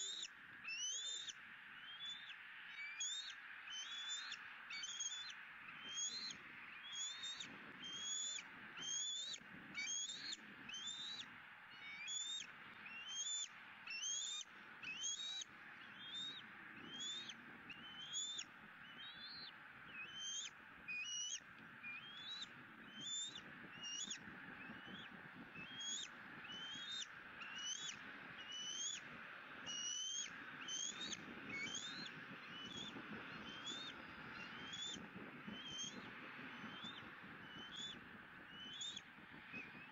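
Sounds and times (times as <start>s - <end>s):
eagle chick peeping: 11.8s - 29.1s, 29.7s - 36.0s.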